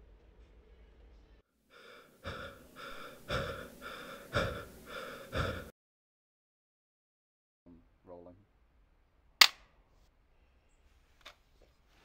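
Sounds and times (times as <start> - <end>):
person breathing hard: 1.7 - 5.8.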